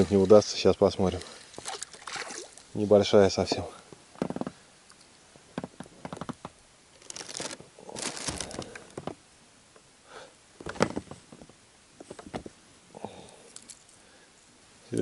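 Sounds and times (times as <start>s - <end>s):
rustling and scraping: 5.5s - 9.2s, 10.6s - 12.6s.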